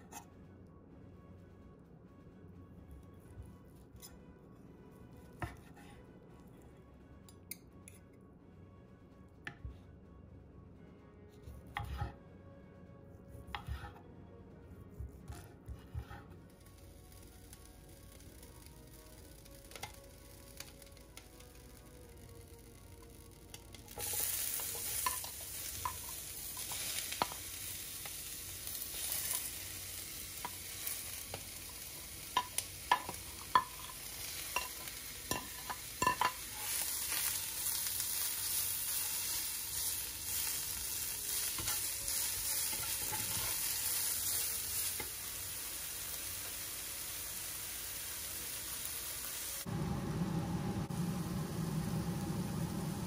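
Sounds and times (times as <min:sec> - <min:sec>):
vegetables sizzling in hot oil: 0:16.6 - 0:53.0.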